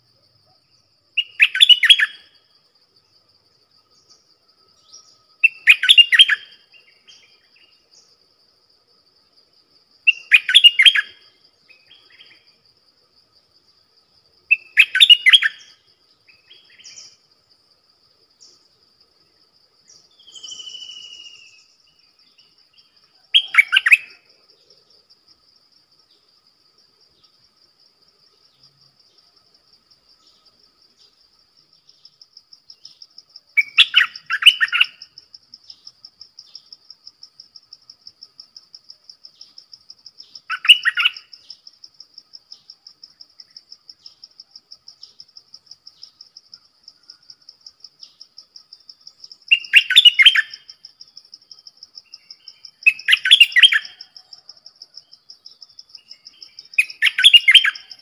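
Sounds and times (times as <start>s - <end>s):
bulbul singing: 19.9s - 21.8s.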